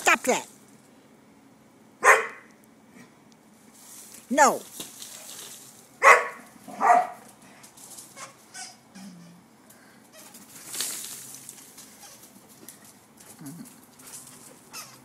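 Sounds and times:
dog barking: 0:02.0 - 0:02.5, 0:06.0 - 0:07.3.

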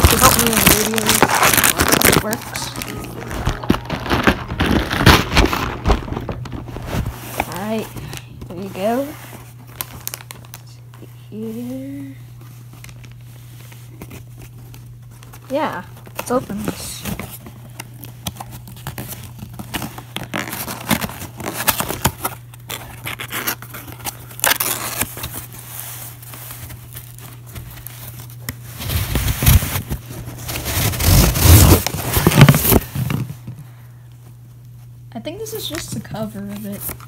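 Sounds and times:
rubbing and knocking of contents: 0:00.0 - 0:09.6
cardboard flaps scraping and crackling: 0:00.0 - 0:10.4, 0:12.7 - 0:33.6.

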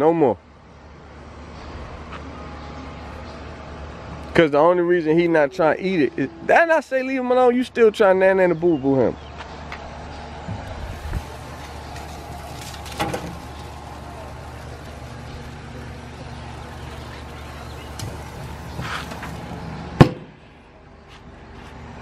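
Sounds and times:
low steady hum: 0:10.0 - 0:21.0
meat sizzling on grill: 0:10.9 - 0:19.6.

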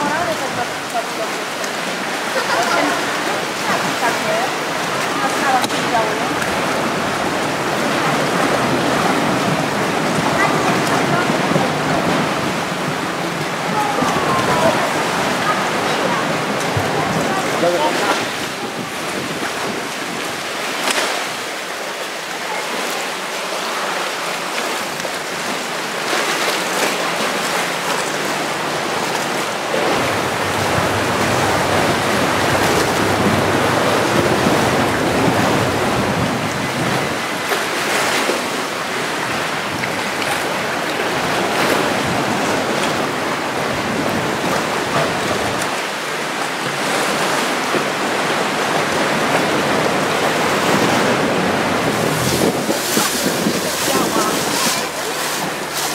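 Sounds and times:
sea water lapping against rock: 0:00.0 - 0:55.9
water splashes: 0:00.0 - 0:55.9
wind buffeting microphone: 0:04.7 - 0:20.6, 0:28.4 - 0:37.8, 0:48.5 - 0:55.9.

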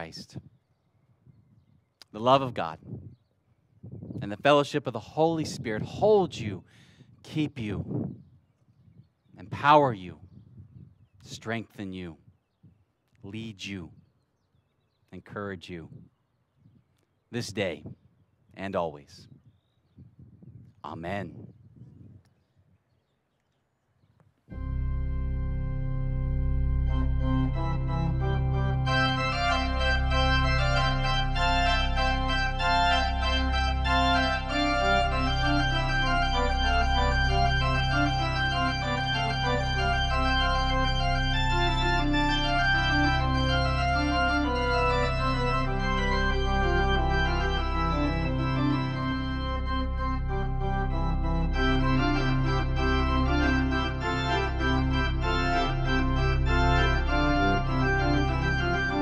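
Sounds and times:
organ playing chords: 0:00.0 - 0:00.3, 0:24.5 - 0:59.0.

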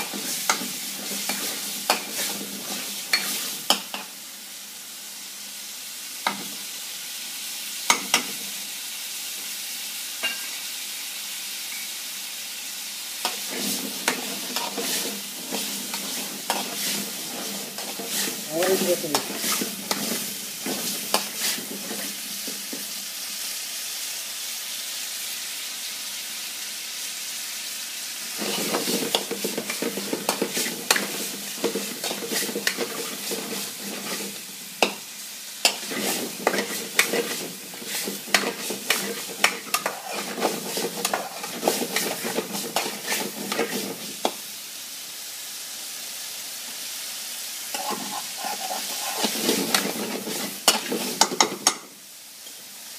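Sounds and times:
metal spoon scraping a pan: 0:00.0 - 0:04.1, 0:13.2 - 0:22.2, 0:28.4 - 0:35.0, 0:35.6 - 0:44.4, 0:47.7 - 0:51.8
curry sizzling in a pan: 0:00.0 - 0:52.9.

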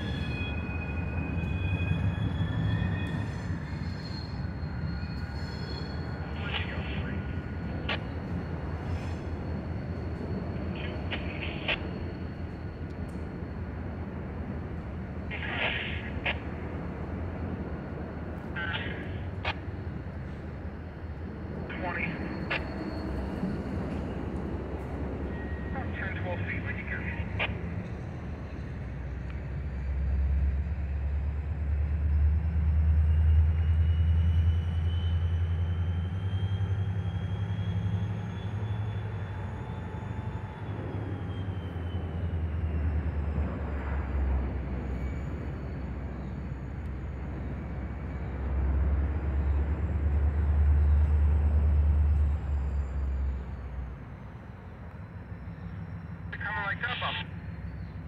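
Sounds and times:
distant diesel locomotive rumble: 0:00.0 - 0:58.0.

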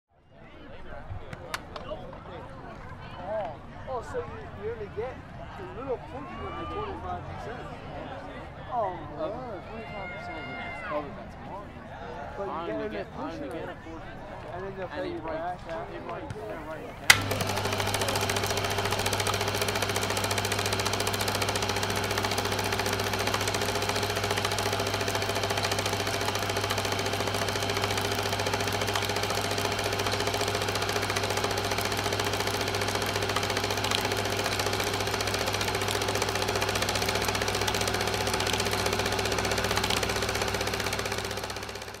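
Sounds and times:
film projector rattling: 0:17.0 - 0:42.0
projector hum: 0:17.0 - 0:42.0.

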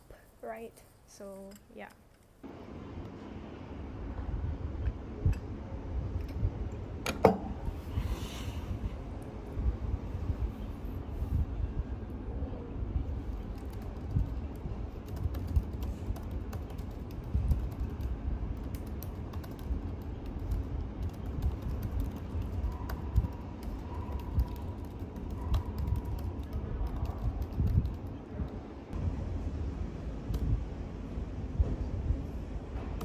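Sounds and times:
low steady rumble: 0:02.4 - 0:33.0
laptop keyboard typing: 0:13.2 - 0:28.2.

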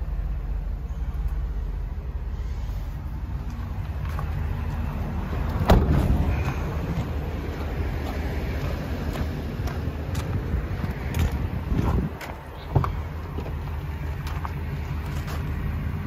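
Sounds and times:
truck door slamming: 0:05.6 - 0:06.4.

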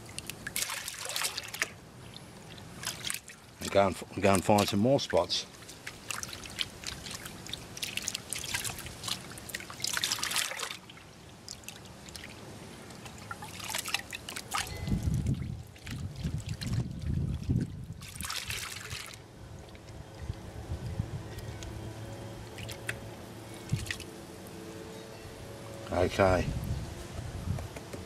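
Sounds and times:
water sloshing in a pan: 0:00.0 - 0:20.4.

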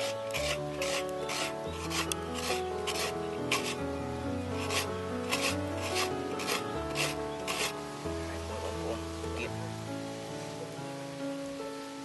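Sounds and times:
coconut grating rasps: 0:00.0 - 0:03.8, 0:04.6 - 0:07.8
background music with held notes: 0:00.0 - 0:12.0.

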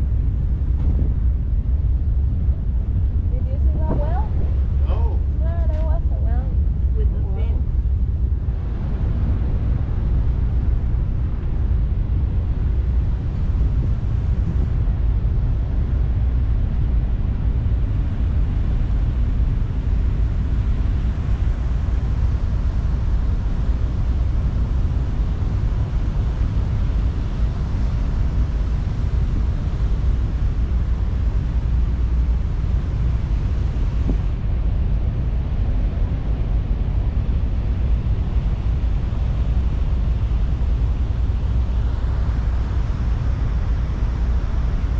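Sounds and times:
ferry engines rumbling: 0:00.0 - 0:22.1.

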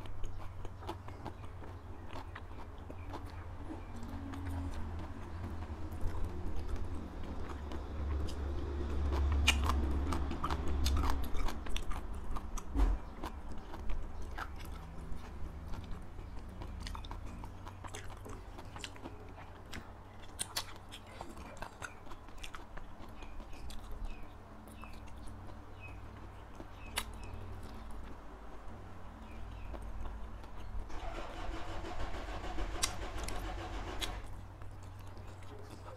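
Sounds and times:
person chewing food: 0:00.0 - 0:30.9, 0:34.2 - 0:35.9.

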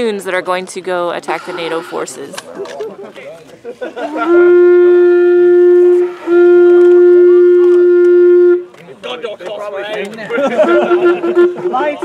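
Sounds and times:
animal horn blasts: 0:01.3 - 0:02.2, 0:04.2 - 0:08.7.

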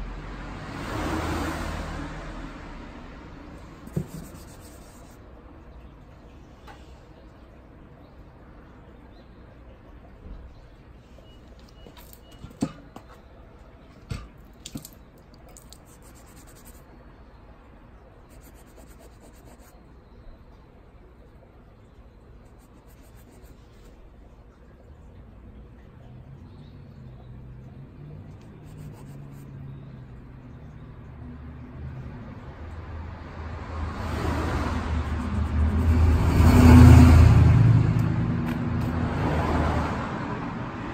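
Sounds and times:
vehicle engine passing by: 0:00.0 - 0:03.9, 0:26.0 - 0:40.9
fingertip rubbing wet tread: 0:03.9 - 0:05.2, 0:14.6 - 0:16.8, 0:28.4 - 0:29.5.

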